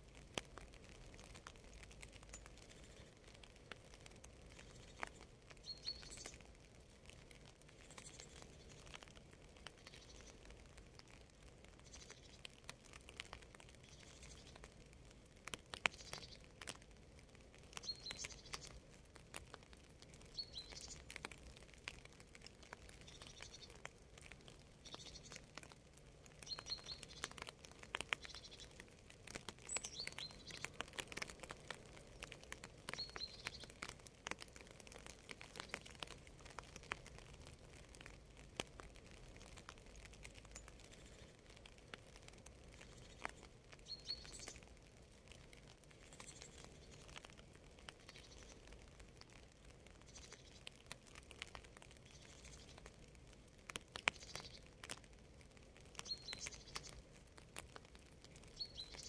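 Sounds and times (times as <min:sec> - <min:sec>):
light rain: 0:00.0 - 0:59.0
raindrops ticking: 0:00.0 - 0:59.0
bird chirping: 0:04.6 - 0:06.4, 0:17.8 - 0:18.7, 0:20.3 - 0:21.1, 0:23.0 - 0:23.8, 0:24.8 - 0:25.4, 0:26.4 - 0:27.4, 0:28.1 - 0:28.8, 0:29.6 - 0:30.7, 0:32.9 - 0:33.7, 0:42.7 - 0:44.6, 0:56.0 - 0:57.0, 0:58.5 - 0:59.0.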